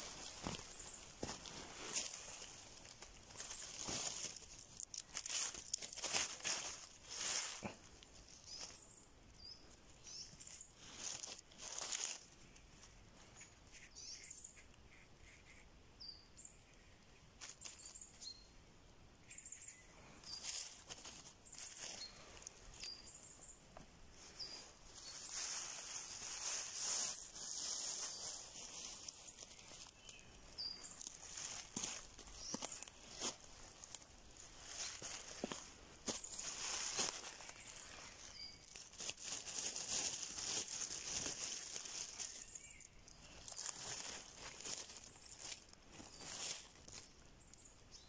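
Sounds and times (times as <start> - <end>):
steady high hiss: 0.0 - 7.6
footsteps crunching dry leaves: 0.0 - 8.9, 10.0 - 13.0, 20.2 - 23.1, 24.2 - 47.2
small birds chirping: 0.0 - 48.0.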